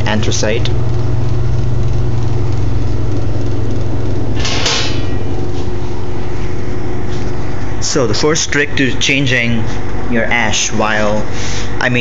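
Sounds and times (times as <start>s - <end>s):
steady low hum: 0.0s - 12.0s
metal lid scraping shut: 4.4s - 5.2s.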